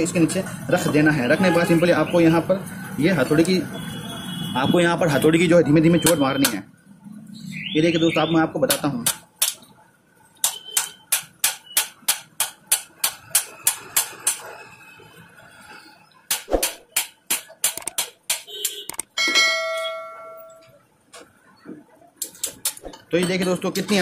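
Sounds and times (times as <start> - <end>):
hammer tapping steel punch: 10.4 - 14.4
ringing metallic clang: 19.2 - 20.8.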